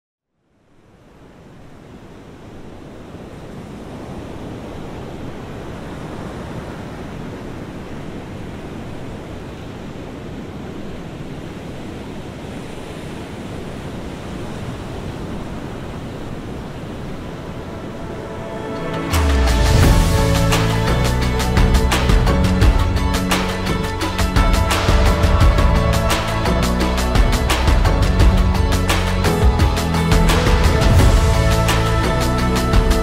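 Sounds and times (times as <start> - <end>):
surf breaking on a beach: 0.8 - 20.7.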